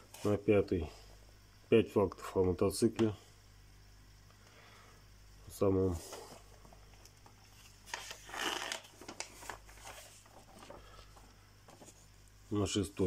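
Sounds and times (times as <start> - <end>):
magazine pages rustling: 6.0 - 12.2.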